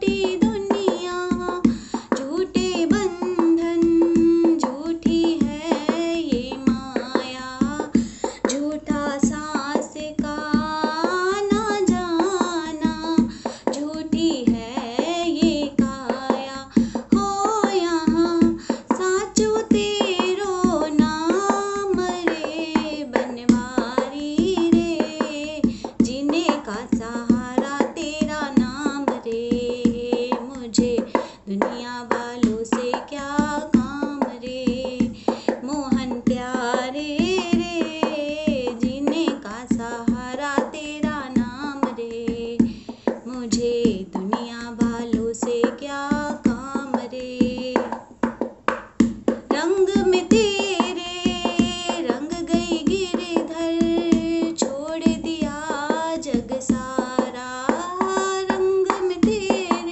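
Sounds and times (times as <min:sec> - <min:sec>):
woman singing devotional song: 0:00.0 - 0:59.9
steady percussive beat: 0:32.4 - 0:59.9.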